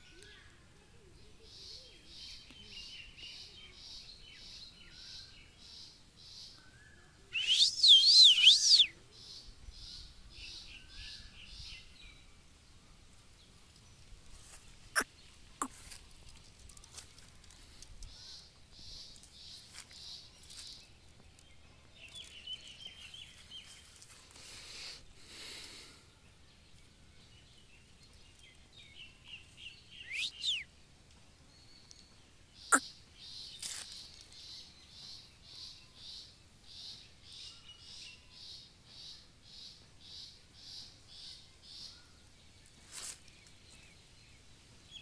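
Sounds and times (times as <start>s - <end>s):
high chirps: 7.4s - 8.9s, 30.0s - 30.6s.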